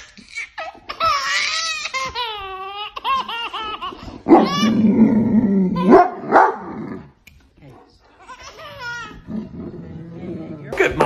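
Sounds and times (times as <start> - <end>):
baby laughing: 0.0 - 4.8, 8.2 - 9.3.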